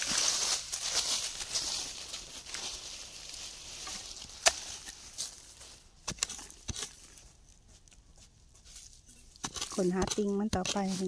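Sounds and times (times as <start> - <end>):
spade chopping into soil: 4.3 - 5.0, 6.0 - 7.0, 9.4 - 11.0.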